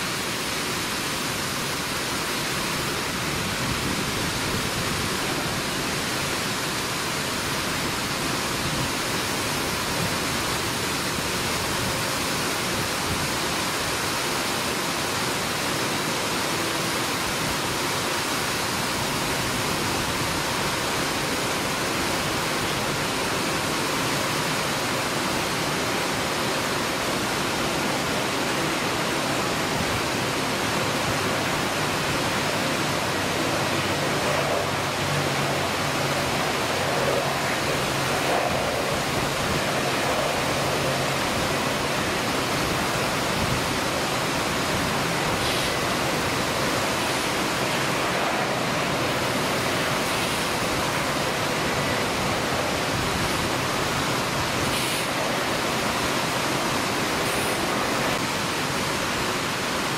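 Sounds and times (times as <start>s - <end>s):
heavy rain hissing: 0.0s - 59.9s
turboprop engines droning: 25.5s - 58.2s.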